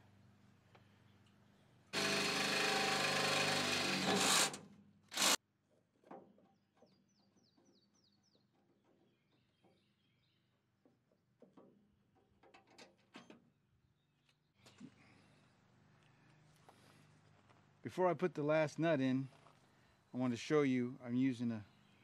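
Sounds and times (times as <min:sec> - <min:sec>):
cordless drill running: 0:02.0 - 0:05.4.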